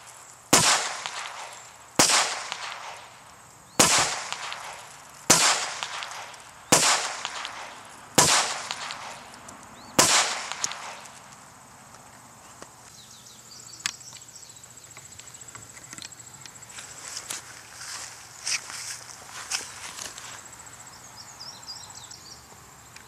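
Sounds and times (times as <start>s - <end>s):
gunshots with long echo: 0.5s - 3.2s, 3.8s - 9.4s, 10.0s - 11.2s.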